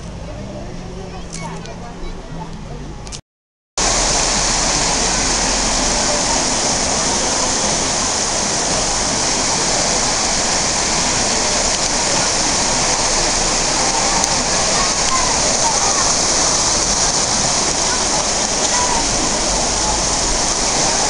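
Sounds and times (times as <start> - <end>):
water rushing over rocks: 3.8 - 21.0.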